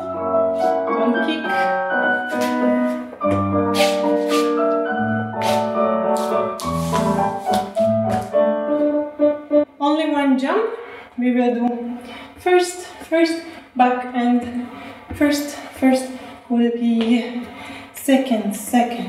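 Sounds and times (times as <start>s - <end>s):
solo piano chords: 0.0s - 9.7s.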